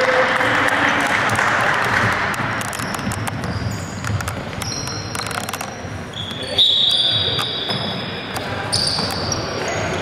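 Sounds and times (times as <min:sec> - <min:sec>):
spectators clapping and cheering: 0:00.0 - 0:03.5.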